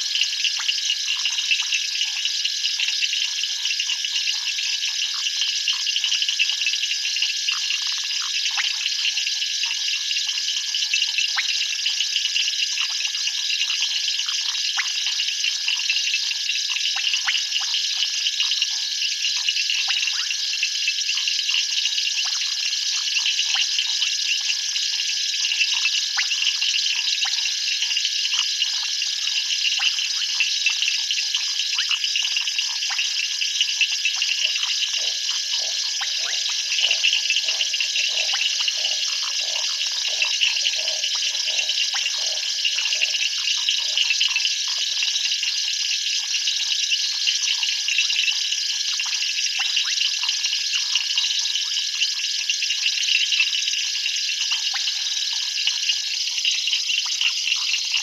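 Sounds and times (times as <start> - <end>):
short insect chirps: 21.9 - 45.8
insects shrilling: 33.8 - 44.3
constant low tone: 34.2 - 44.2.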